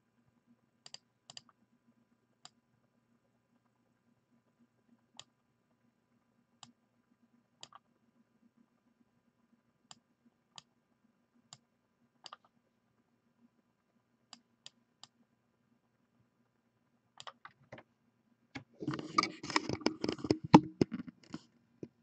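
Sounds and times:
faint low hum: 0.0s - 22.0s
computer mouse clicks: 0.8s - 1.6s, 7.6s - 7.8s, 12.2s - 12.5s, 17.2s - 17.8s, 18.6s - 22.0s.

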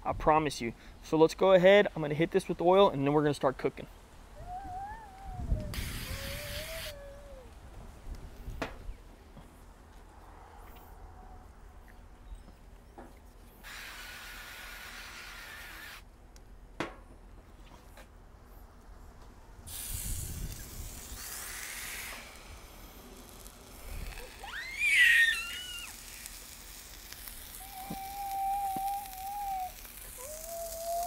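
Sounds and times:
oil spray hissing: 5.8s - 6.9s, 13.6s - 16.0s, 19.7s - 31.0s
ground beef sizzling on griddle: 13.6s - 16.0s, 19.7s - 31.0s.

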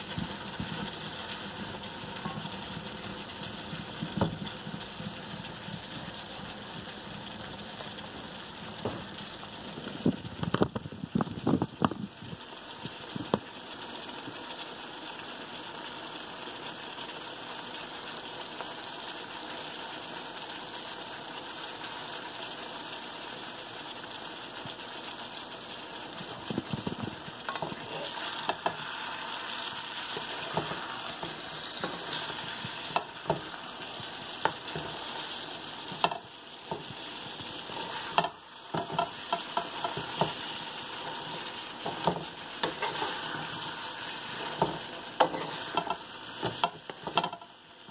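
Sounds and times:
food sizzling in a metal pan: 0.0s - 47.9s
wooden spatula scraping a pan: 26.2s - 47.9s.

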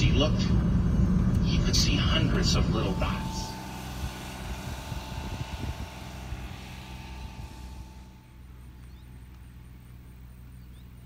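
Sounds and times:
low engine drone: 0.0s - 11.0s.

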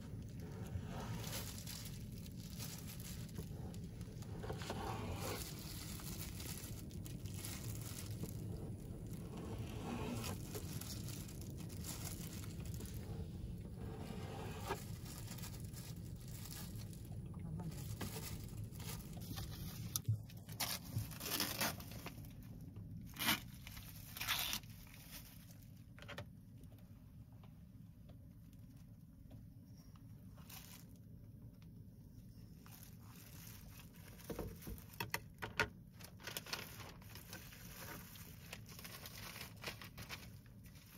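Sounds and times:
plastic glove crinkling: 0.0s - 26.2s, 30.3s - 31.4s, 32.4s - 40.9s
low steady hum: 0.0s - 40.9s
plastic food pack crinkling: 0.1s - 26.2s, 32.6s - 40.9s.

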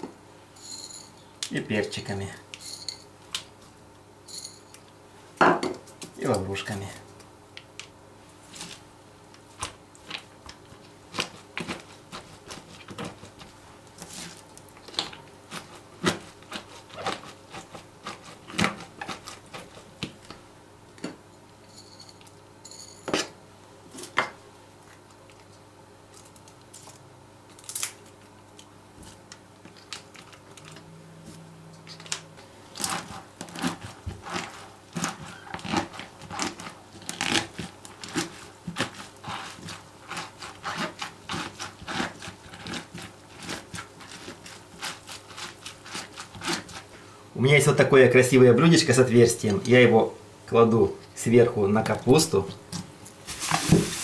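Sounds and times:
cabbage crunching and rustling: 9.6s - 20.1s, 32.7s - 46.9s, 53.2s - 54.0s.

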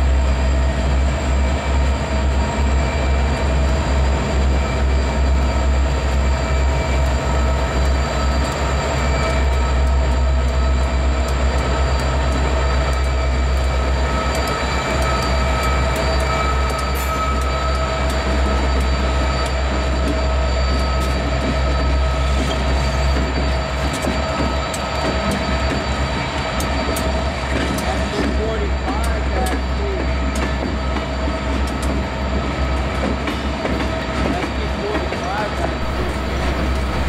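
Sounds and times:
diesel locomotive rumble: 0.0s - 37.0s
thin steady whine: 35.7s - 37.0s.

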